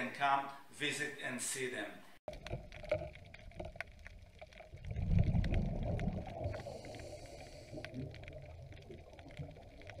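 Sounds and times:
faint underwater clicks: 2.3s - 10.0s
muffled underwater rumbling: 2.3s - 10.0s.

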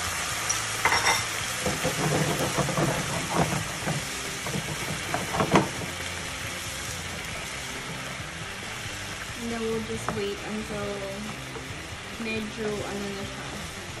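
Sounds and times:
sauce sizzling in a frying pan: 0.0s - 14.0s
wooden spatula scraping a pan: 1.6s - 6.1s.

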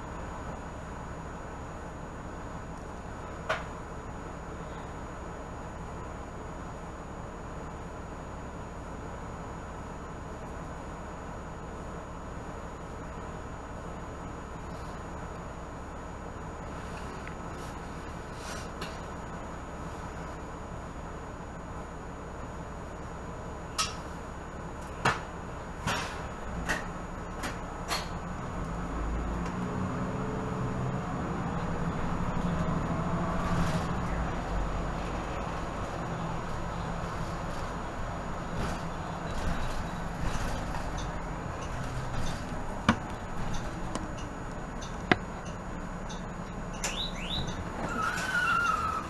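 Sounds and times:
bus engine rumbling: 0.0s - 49.0s
short rising squeaks: 46.7s - 49.0s.

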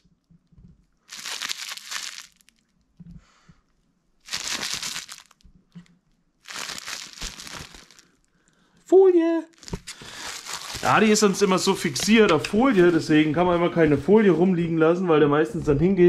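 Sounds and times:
plastic film crinkling: 1.1s - 2.7s, 4.2s - 5.8s, 6.4s - 8.3s, 9.5s - 12.8s.

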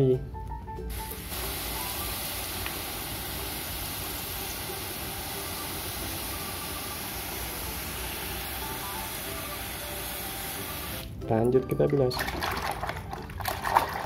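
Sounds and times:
water spray hissing: 0.9s - 11.2s.

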